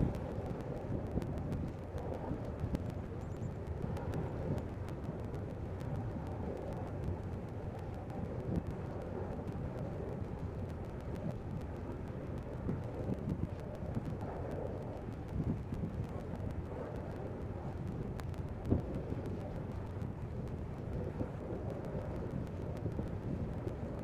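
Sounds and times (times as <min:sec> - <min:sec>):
wind on microphone: 0:00.0 - 0:24.0.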